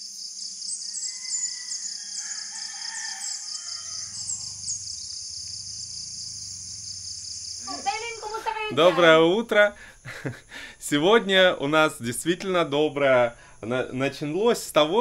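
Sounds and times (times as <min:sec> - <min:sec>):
insects trilling: 0:00.0 - 0:15.0
rooster crowing: 0:00.9 - 0:05.0
low hum: 0:04.1 - 0:08.9.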